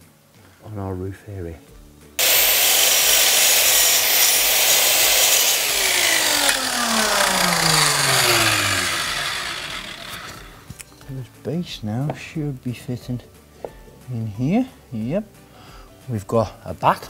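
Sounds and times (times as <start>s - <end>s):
mitre saw cutting wood: 2.2s - 10.7s
saw motor winding down: 2.2s - 10.7s.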